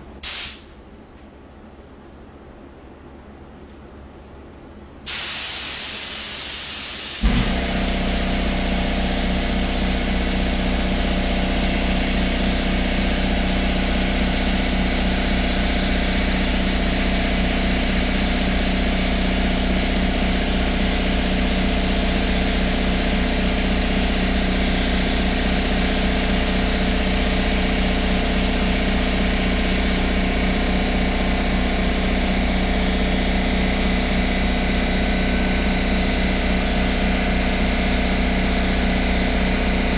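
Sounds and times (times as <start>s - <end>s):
spray gun hissing: 0.2s - 0.7s, 5.1s - 30.2s
air compressor motor running: 5.0s - 39.9s.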